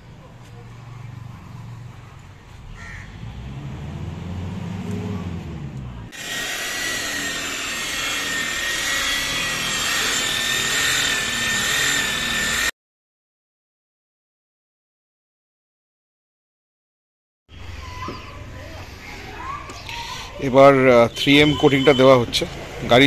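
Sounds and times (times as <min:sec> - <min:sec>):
car polisher whining: 0:06.1 - 0:12.7.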